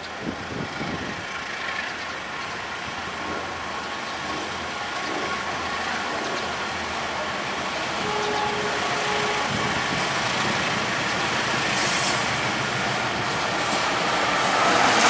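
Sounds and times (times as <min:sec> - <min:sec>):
diesel locomotive engine approaching: 0:00.0 - 0:15.0.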